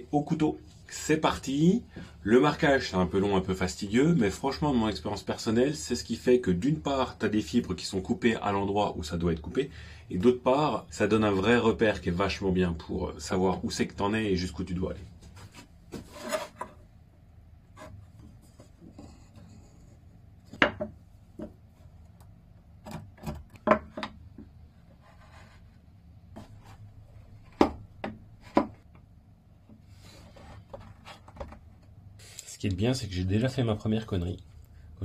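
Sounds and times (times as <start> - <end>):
knife scratching lines into wood: 16.1 - 16.7.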